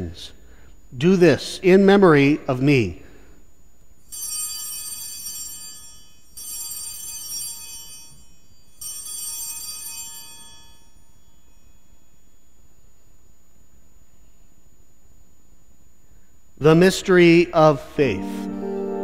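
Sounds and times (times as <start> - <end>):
altar bells ringing: 4.0 - 12.4.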